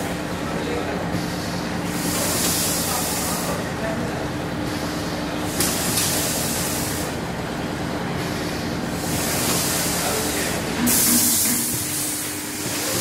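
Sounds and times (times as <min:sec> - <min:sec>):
packaging machine hum: 0:00.0 - 0:13.0
compressed air hisses: 0:02.0 - 0:03.6, 0:10.8 - 0:13.0.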